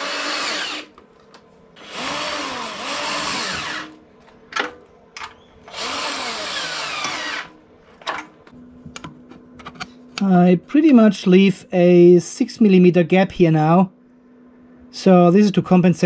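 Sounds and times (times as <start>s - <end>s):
electric drill-driver running: 0.0s - 1.0s, 1.8s - 4.0s, 5.7s - 7.6s.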